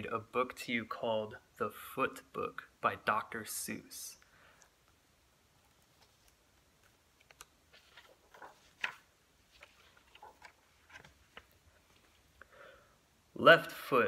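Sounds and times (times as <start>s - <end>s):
book pages turning: 5.6s - 12.4s.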